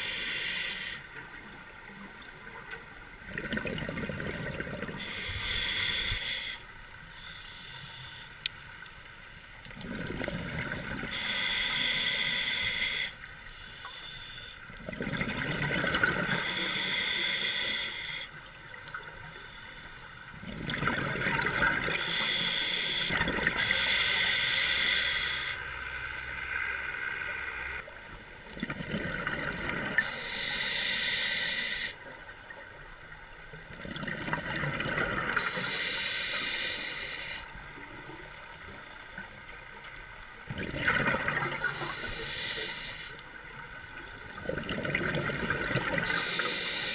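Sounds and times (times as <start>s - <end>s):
diver breathing through regulator: 0.0s - 1.1s, 5.0s - 8.4s, 11.0s - 14.6s, 15.9s - 18.4s, 21.7s - 25.7s, 30.0s - 32.0s, 35.3s - 37.5s, 41.4s - 43.2s, 45.4s - 46.9s.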